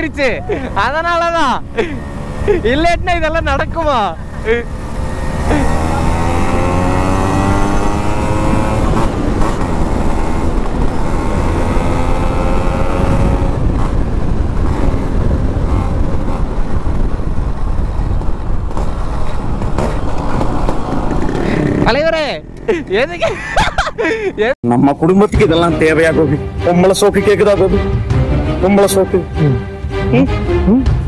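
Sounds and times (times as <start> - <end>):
motorcycle engine accelerating: 0.1 - 24.6
wind rumble on microphone: 1.4 - 21.9.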